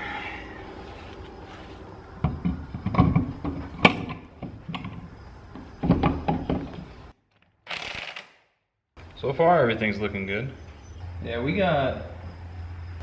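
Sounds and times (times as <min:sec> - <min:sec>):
hands knocking and scuffing a tyre: 0:02.1 - 0:07.0.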